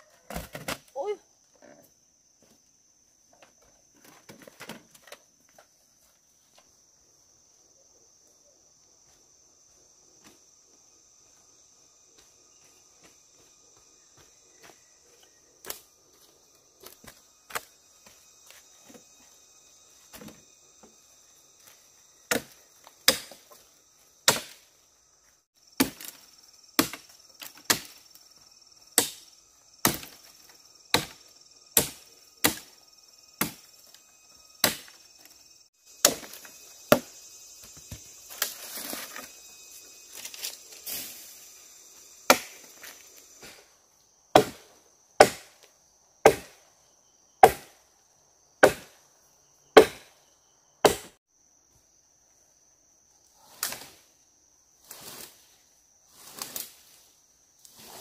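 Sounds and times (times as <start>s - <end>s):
insects chirring: 0.0s - 58.0s
chopping strikes on wood: 22.3s - 23.6s, 24.2s - 24.6s, 25.8s - 26.2s, 26.8s - 28.0s, 29.0s - 30.2s, 30.9s - 31.2s, 31.8s - 32.7s, 33.4s - 33.7s, 34.6s - 35.0s, 36.0s - 37.2s, 42.3s - 42.7s, 44.3s - 46.6s, 47.4s - 47.8s, 48.6s - 49.0s, 49.8s - 50.1s, 50.8s - 51.2s.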